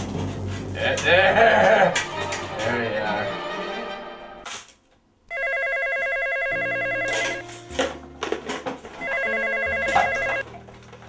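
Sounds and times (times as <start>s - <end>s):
telephone electronic ring: 5.3s - 7.5s, 9.0s - 10.4s.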